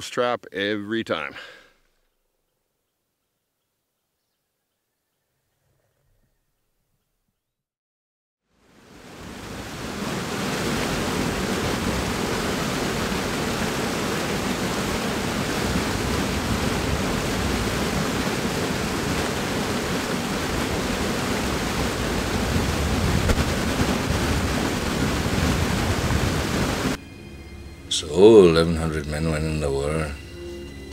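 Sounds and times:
water rushing over a weir: 8.6 - 27.0.

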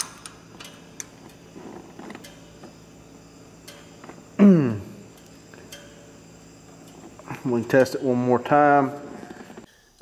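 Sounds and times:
steady low hum: 0.0 - 10.0
man's short vocal sound: 4.4 - 5.0.

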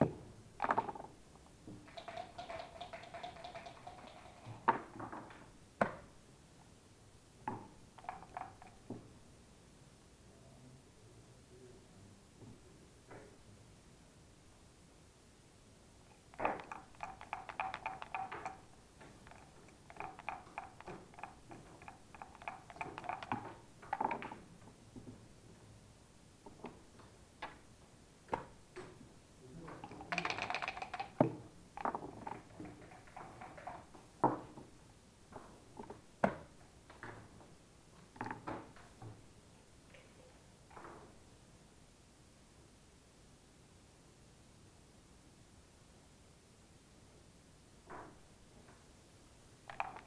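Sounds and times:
dice rattling in cups: 1.8 - 4.7, 8.0 - 8.9, 16.1 - 24.2, 29.8 - 33.9, 49.7 - 50.0
dice and checkers landing on board: 1.8 - 6.1, 16.3 - 24.4, 29.8 - 34.5, 49.7 - 50.0.

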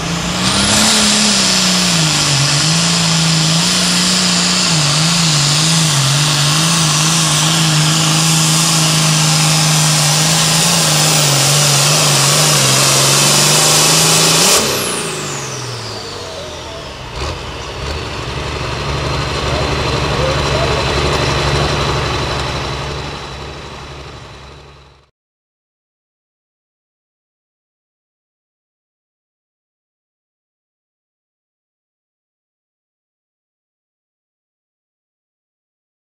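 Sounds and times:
diesel tractor engine running: 0.0 - 25.1.

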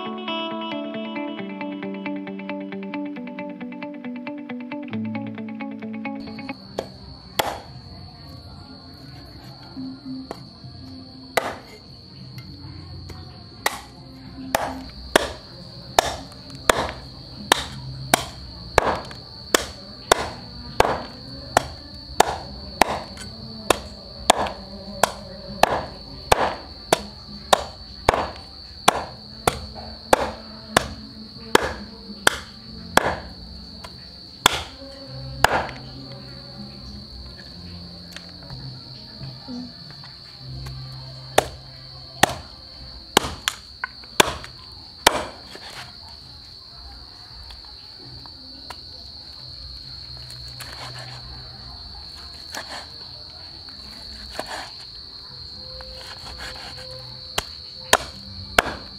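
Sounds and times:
cricket trill: 0.0 - 58.9
faint background music: 0.0 - 58.9
cleaver chopping on wooden block: 6.8 - 7.7, 11.4 - 11.8, 13.7 - 13.9, 14.6 - 15.4, 16.0 - 31.0, 31.6 - 33.3, 34.4 - 34.8, 35.4 - 35.8, 41.4 - 41.6, 42.2 - 42.5, 43.2 - 43.6, 44.2 - 45.8, 57.4 - 58.9.

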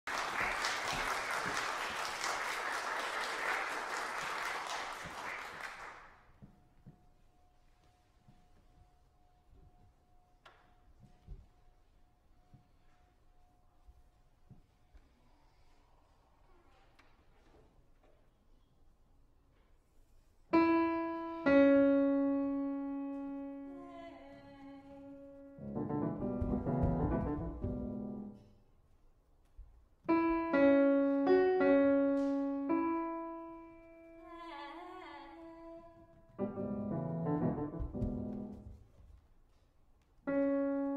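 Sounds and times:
audience applauding: 0.0 - 6.2
grand piano notes: 20.5 - 28.6, 30.1 - 38.9, 40.2 - 40.9.

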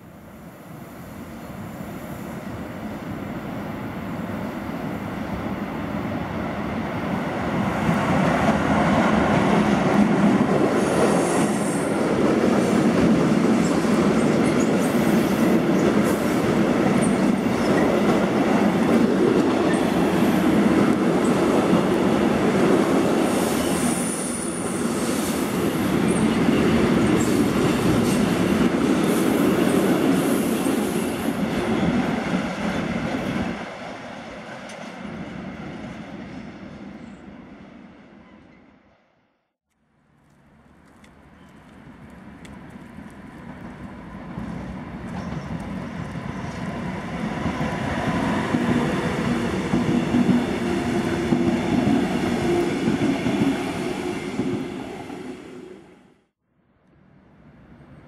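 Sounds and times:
train wheels rumbling on rails: 41.3 - 55.4.

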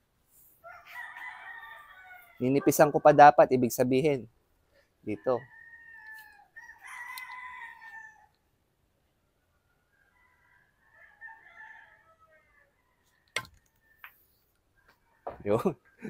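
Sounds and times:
rooster crowing: 0.6 - 2.9, 5.3 - 8.4, 10.0 - 15.5.

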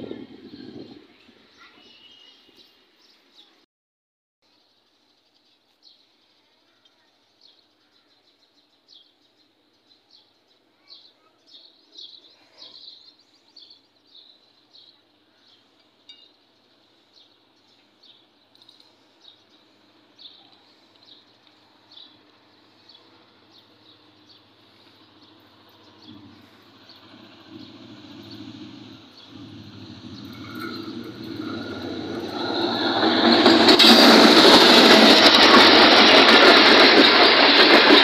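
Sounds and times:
distant train rumble: 0.0 - 2.6, 13.1 - 38.0.

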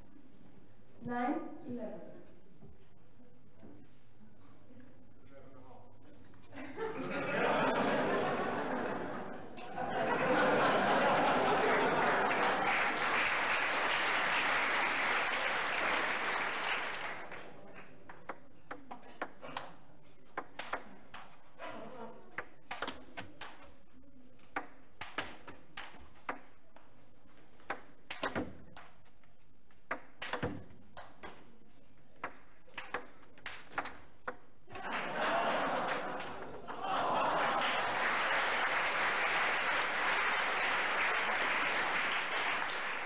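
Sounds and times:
audience applause: 7.0 - 17.9, 34.7 - 43.0
table tennis ball clicking: 20.3 - 21.4, 22.4 - 23.6, 27.6 - 29.0, 29.7 - 31.5, 32.2 - 34.5.

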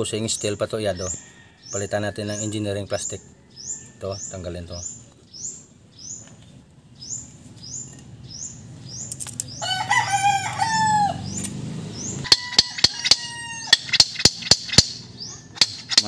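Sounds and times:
bird chirping: 0.0 - 16.0
rooster crowing: 1.0 - 2.5, 9.6 - 11.4, 12.2 - 14.0
metal taps: 12.3 - 15.0, 15.6 - 16.0.

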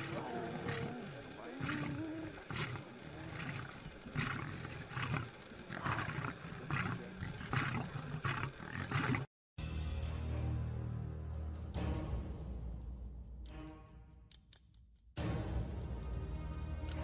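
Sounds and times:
wild animal calling: 0.0 - 9.3.

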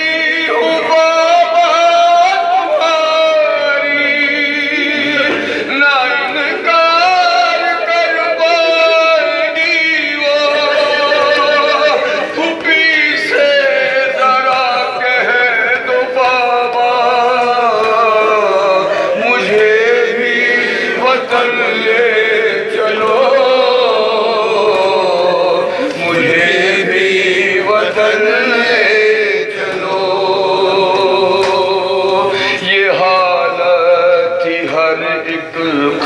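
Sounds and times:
man chanting melodic elegy: 0.0 - 24.6.

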